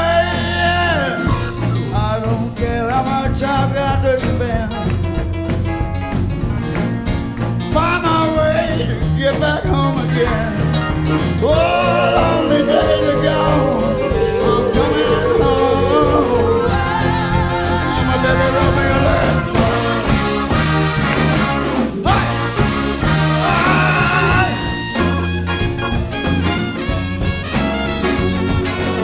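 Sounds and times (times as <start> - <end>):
man singing: 0.0 - 5.2, 7.7 - 20.6, 22.0 - 24.8
rock-soul band with horns: 0.0 - 29.0.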